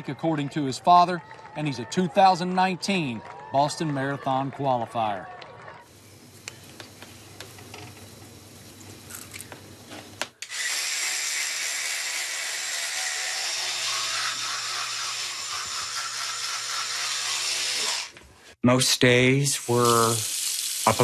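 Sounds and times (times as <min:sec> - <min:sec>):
electric toothbrush buzzing: 0:10.4 - 0:18.2.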